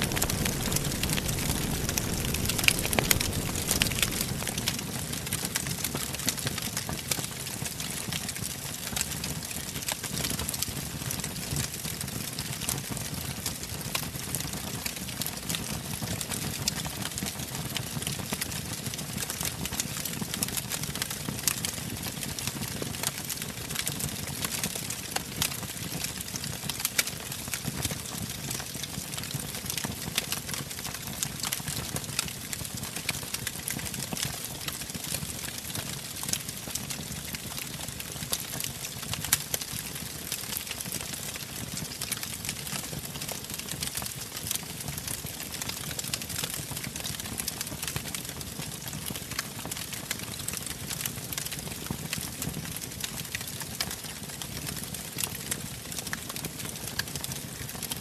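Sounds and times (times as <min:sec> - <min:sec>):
low rush of flames: 0:00.0 - 0:06.0
fire crackling and popping: 0:00.0 - 0:58.0.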